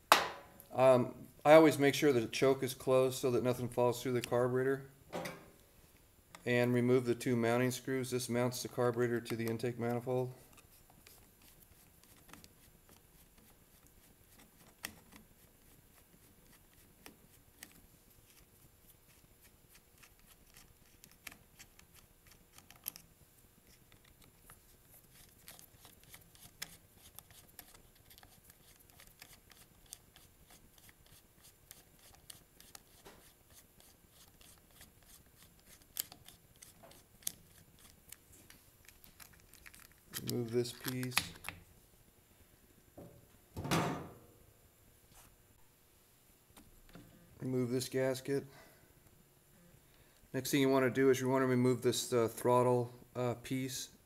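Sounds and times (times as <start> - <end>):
screwdriver clicks and scrapes: 19.1 - 38.2
handling plastic housing: 38.8 - 41.6.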